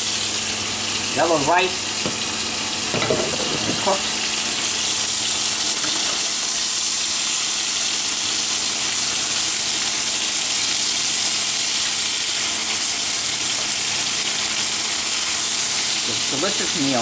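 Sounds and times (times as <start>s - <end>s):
cutlets sizzling in frying pan: 0.0s - 17.0s.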